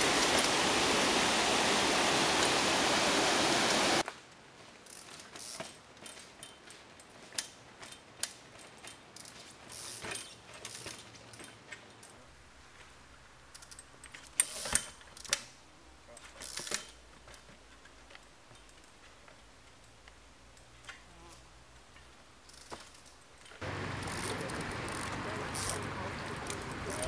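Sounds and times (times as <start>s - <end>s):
loud steady rushing noise: 0.0s - 4.0s.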